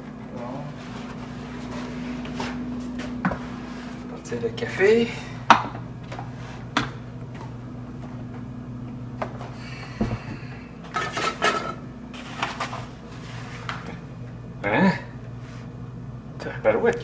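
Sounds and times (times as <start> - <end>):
steady low hum: 0.0 - 17.0
dishes and utensils clattering: 10.9 - 11.8.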